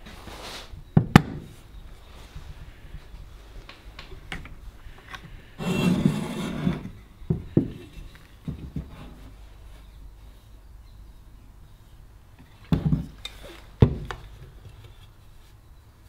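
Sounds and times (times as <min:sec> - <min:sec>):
plane scraping across bench: 0:05.6 - 0:07.0.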